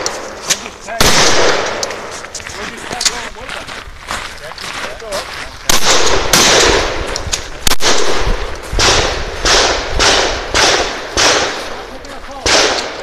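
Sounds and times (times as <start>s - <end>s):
shotgun blasts with echo: 0.0s - 2.1s, 5.7s - 13.0s.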